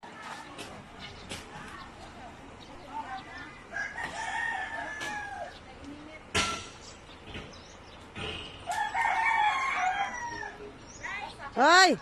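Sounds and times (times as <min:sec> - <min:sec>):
rooster crowing: 0:03.7 - 0:05.5, 0:08.7 - 0:10.6.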